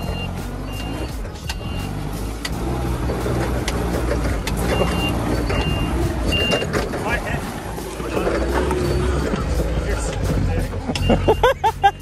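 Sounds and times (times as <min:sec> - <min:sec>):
high reversing beep: 0:00.0 - 0:02.5, 0:04.7 - 0:06.7, 0:08.8 - 0:09.3, 0:11.0 - 0:12.0
forklift engine running: 0:00.0 - 0:12.0.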